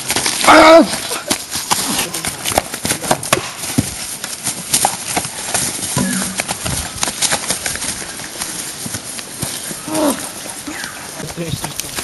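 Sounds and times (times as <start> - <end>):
person shouting: 0.4 - 1.2.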